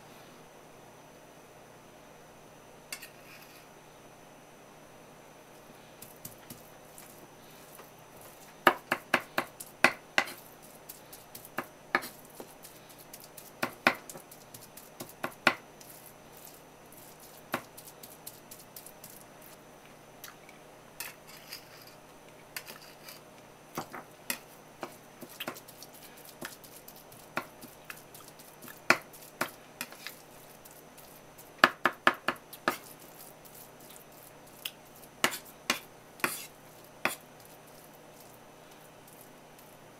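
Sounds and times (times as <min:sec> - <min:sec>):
knife chopping on wooden board: 0:08.6 - 0:10.4, 0:11.4 - 0:12.6, 0:13.6 - 0:15.6, 0:26.4 - 0:27.8, 0:28.6 - 0:30.2, 0:31.6 - 0:32.9, 0:35.2 - 0:37.2.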